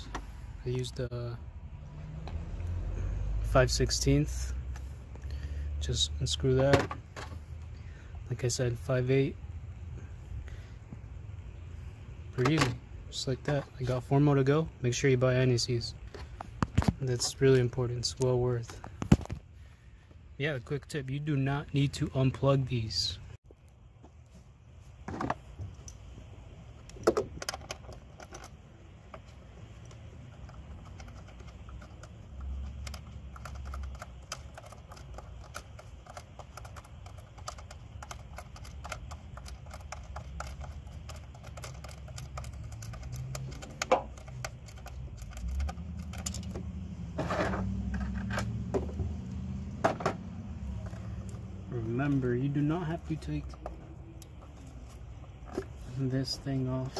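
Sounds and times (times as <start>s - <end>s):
hand tools clicking and rattling: 26.9s - 48.9s.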